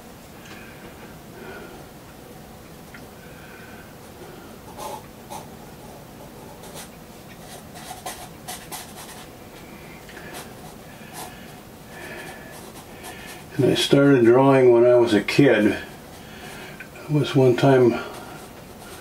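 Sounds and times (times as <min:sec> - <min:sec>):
pencil sketching on paper: 0:06.2 - 0:09.3, 0:10.3 - 0:14.1, 0:15.4 - 0:19.0.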